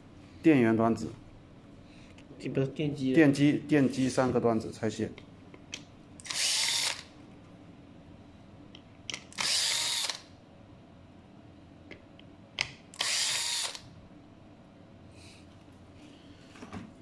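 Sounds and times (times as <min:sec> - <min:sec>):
cordless drill running: 0:06.2 - 0:07.1, 0:09.4 - 0:10.3, 0:13.0 - 0:13.9
drill click: 0:09.3 - 0:10.3, 0:13.0 - 0:13.8.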